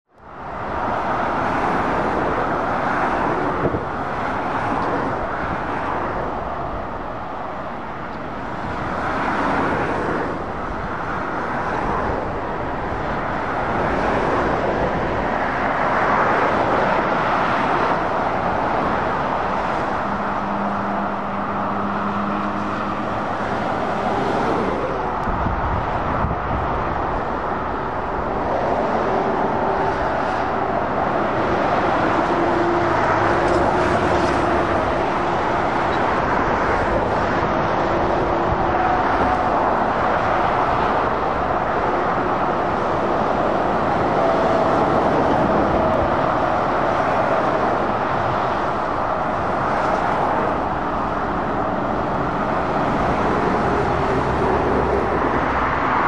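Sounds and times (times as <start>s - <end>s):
cars and lorries driving past: 0.1s - 56.0s.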